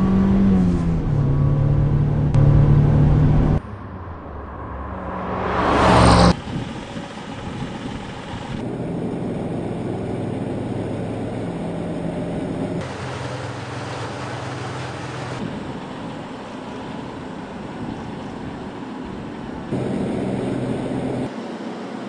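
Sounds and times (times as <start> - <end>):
off-road vehicle engine running: 0.0 - 21.3
vehicle passing by: 1.8 - 7.8.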